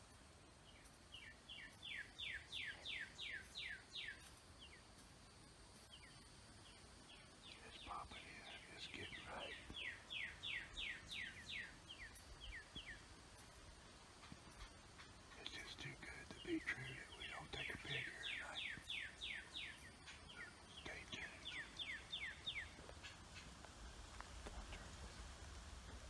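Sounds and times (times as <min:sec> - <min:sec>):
low bird calls: 0:05.8 - 0:25.2.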